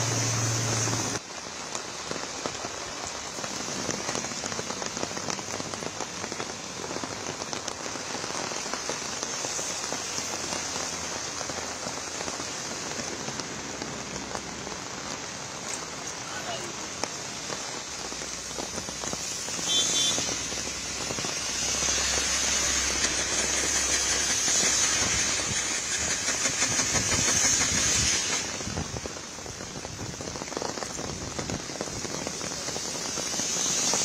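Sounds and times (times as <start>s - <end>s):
car tyres swishing on wet road: 0.0s - 34.0s
heavy rain on pavement: 0.0s - 34.0s.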